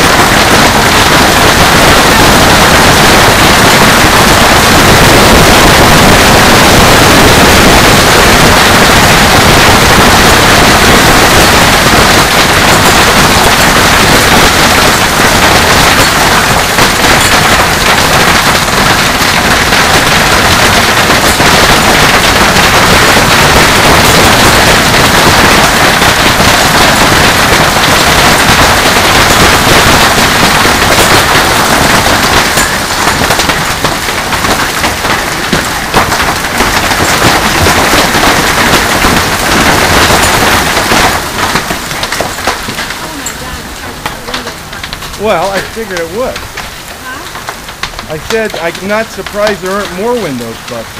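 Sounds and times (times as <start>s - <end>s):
hail pelting: 0.0s - 50.9s.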